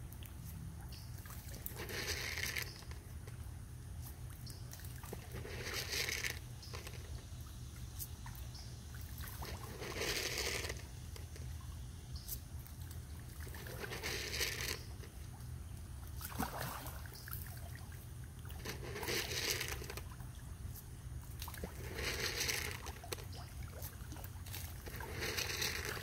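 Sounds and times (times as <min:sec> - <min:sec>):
fish splashing at water surface: 0:16.0 - 0:20.2.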